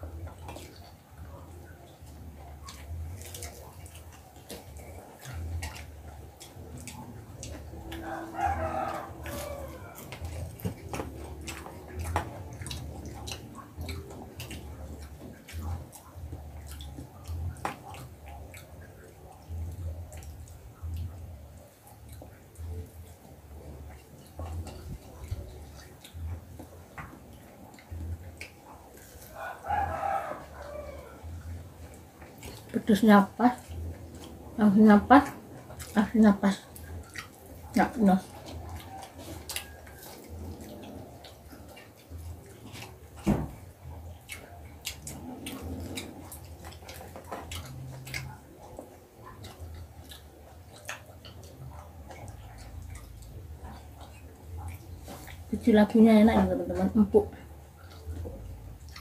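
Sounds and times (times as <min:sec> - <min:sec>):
chewing and lip-smacking: 0:00.0 - 0:59.0
rooster crowing: 0:07.9 - 0:10.2, 0:29.3 - 0:31.3.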